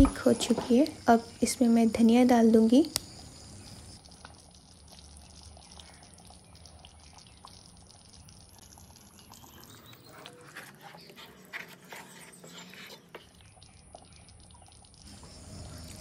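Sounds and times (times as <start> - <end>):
wet squelches of stirred gravy: 4.0 - 16.0.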